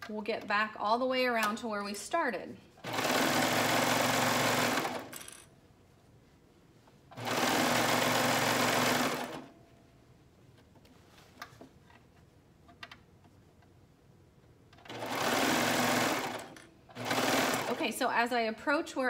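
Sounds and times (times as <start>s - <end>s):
overlock machine stitching: 2.8s - 5.3s, 7.2s - 9.5s, 14.8s - 17.9s.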